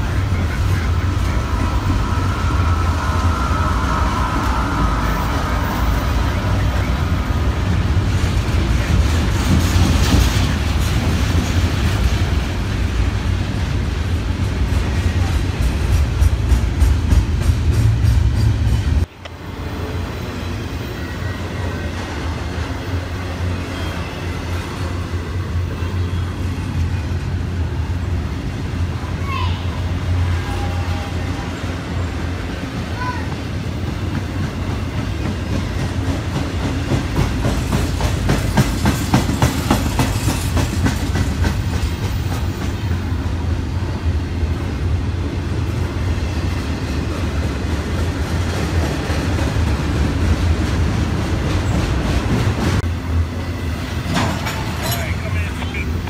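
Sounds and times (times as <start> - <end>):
freight train rumble: 0.0 - 56.0
wheel clatter on rails: 34.2 - 43.1, 54.0 - 55.2.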